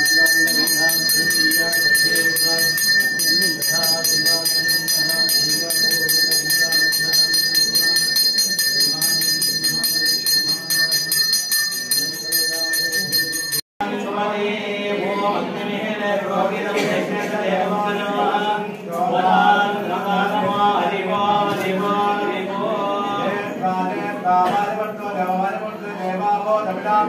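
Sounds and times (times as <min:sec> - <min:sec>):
hand bell ringing rapidly: 0:00.0 - 0:13.6
crowd voices: 0:13.2 - 0:27.0.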